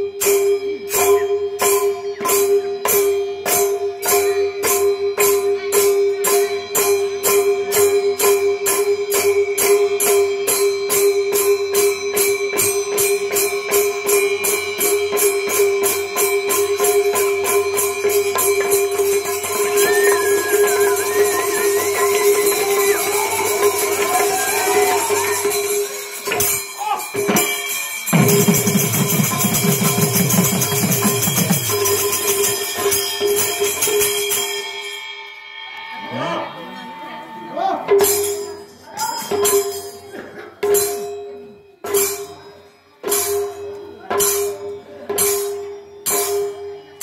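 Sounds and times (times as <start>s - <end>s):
hand cymbals: 0.0s - 37.1s, 37.9s - 47.0s
wavering higher melody: 14.0s - 37.9s.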